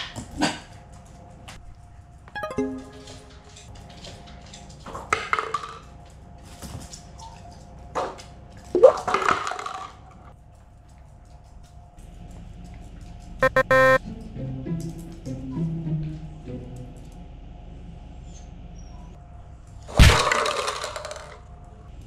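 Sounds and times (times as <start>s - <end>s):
ringing sound effect: 2.4s - 3.2s, 13.4s - 14.0s
background music: 2.4s - 3.6s, 13.4s - 17.0s
paper cups clattering on floor: 9.0s - 10.0s, 20.2s - 21.4s.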